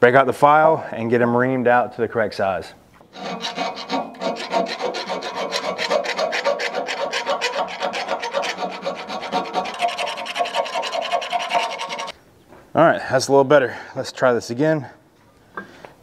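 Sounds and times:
file rasping in steel hole: 0:03.1 - 0:12.1.

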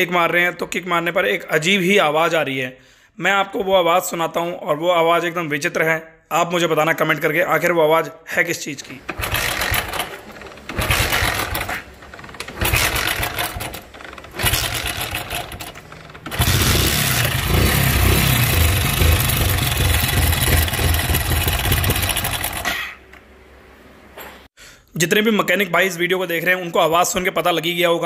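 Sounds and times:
motorcycle engine kick cranking: 0:09.0 - 0:22.8.

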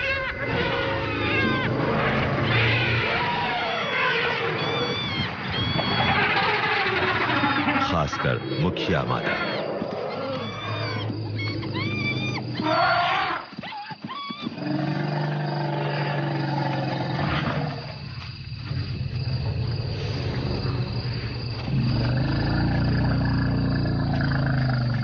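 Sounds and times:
elephant low calls: 0:00.0 - 0:13.5
elephants trumpeting: 0:00.0 - 0:13.5.

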